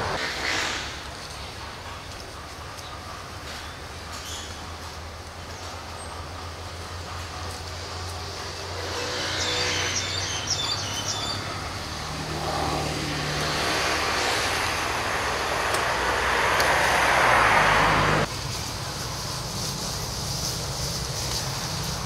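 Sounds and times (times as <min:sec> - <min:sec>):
rushing noise: 0:02.6 - 0:22.0
high bird chirps: 0:09.3 - 0:11.6.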